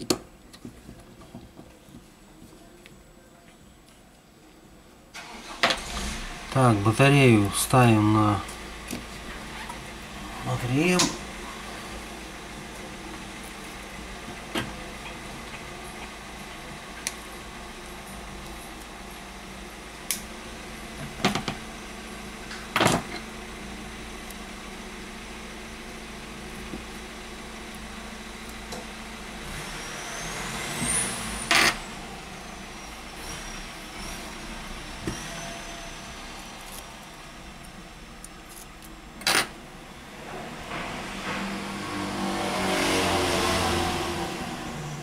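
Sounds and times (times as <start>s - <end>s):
steady low hum: 5.9s - 42.1s
thin high whistle: 29.6s - 36.4s.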